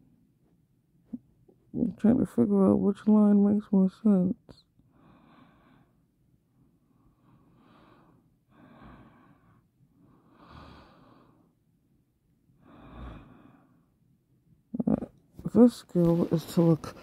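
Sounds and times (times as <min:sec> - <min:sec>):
faint breathing: 0:04.9 - 0:11.6, 0:12.6 - 0:14.0.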